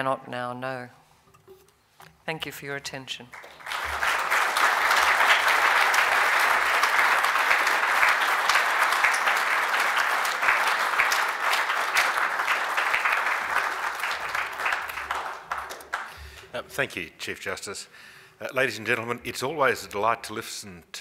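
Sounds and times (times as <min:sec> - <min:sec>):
audience applauding: 0:03.3 - 0:16.6.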